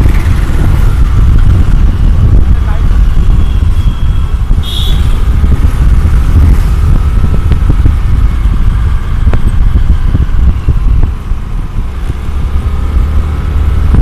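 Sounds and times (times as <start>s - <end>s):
motorbike engine running: 0.0s - 14.0s
wind buffeting microphone: 0.0s - 14.0s.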